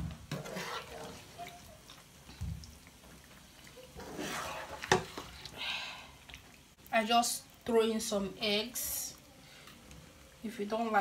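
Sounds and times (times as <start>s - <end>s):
spoon stirring thick stew: 0.2s - 5.6s.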